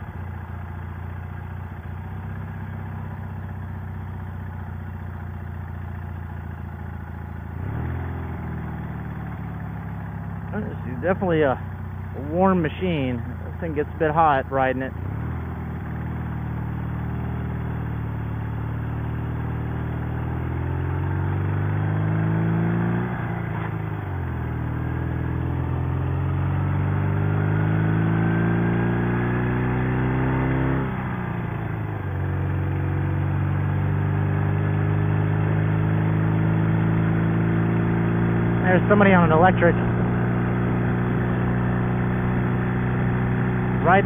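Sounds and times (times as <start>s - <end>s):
motorcycle engine accelerating: 0.0s - 44.0s
wind and road noise: 0.0s - 44.0s.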